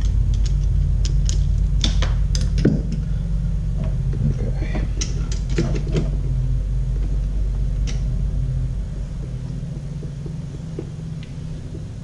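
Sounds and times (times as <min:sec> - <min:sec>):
small parts clicking and rattling: 0:00.0 - 0:03.1
low engine drone: 0:00.0 - 0:12.0.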